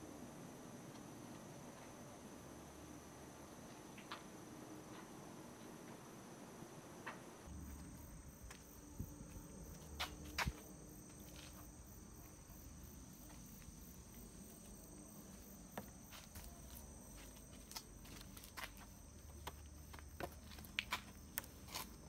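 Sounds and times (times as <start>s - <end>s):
insects chirring: 7.4s - 22.0s.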